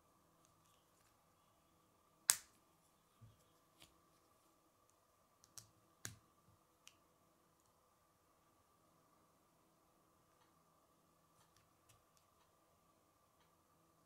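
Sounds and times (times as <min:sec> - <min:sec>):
plastic pieces snapping together: 0:02.3 - 0:02.5.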